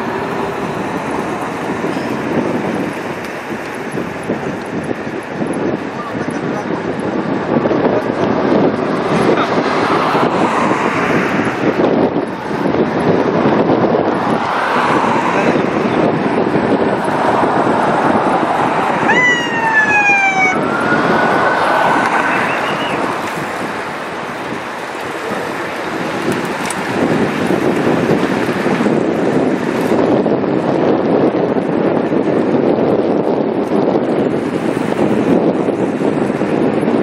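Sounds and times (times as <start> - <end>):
vehicle road noise: 0.0 - 37.0
wind buffeting microphone: 0.0 - 37.0
siren gliding in pitch: 19.0 - 23.2.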